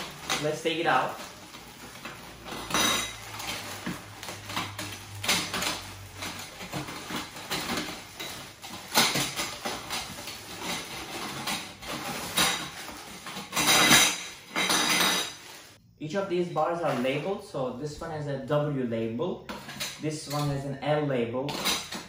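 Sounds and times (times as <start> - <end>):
metal tubes clinking together: 0.0 - 15.7
plastic packaging rustling: 0.0 - 15.8.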